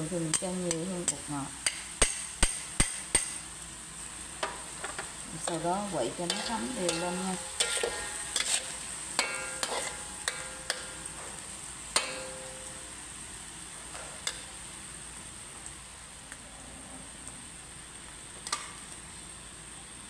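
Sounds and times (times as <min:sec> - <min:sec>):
steady sizzle: 0:00.0 - 0:20.0
metal spatula scraping wok: 0:05.4 - 0:12.8.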